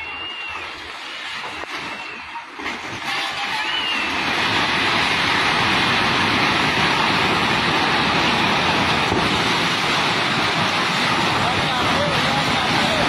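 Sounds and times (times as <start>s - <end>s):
river roaring in flood: 0.0s - 13.0s
building collapsing rumble: 3.8s - 13.0s.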